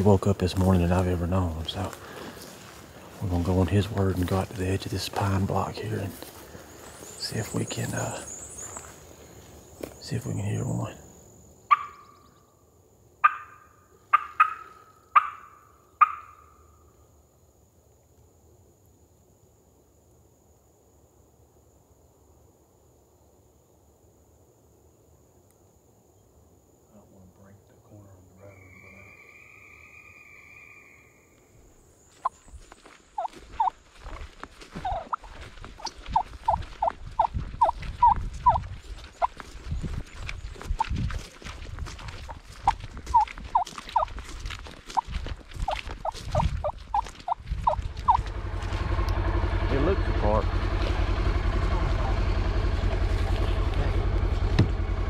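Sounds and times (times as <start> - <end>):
footsteps in grass: 0.0 - 10.6, 31.4 - 49.0
turkey hen yelping: 11.7 - 12.2, 13.2 - 16.7, 33.2 - 33.8, 34.8 - 39.4, 42.2 - 44.1, 45.6 - 48.3
crow call caws: 13.2 - 16.8.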